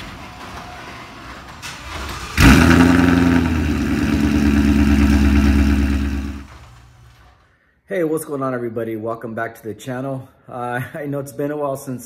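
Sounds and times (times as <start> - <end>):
car engine starting and idling: 0.0 - 7.4
garage door opener running: 0.0 - 7.4.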